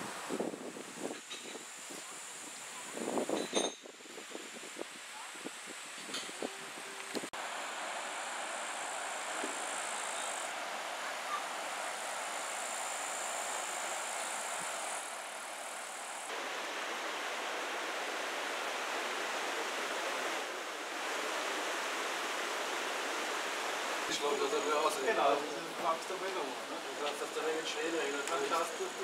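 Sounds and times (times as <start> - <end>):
river rushing over stones: 7.2 - 29.0.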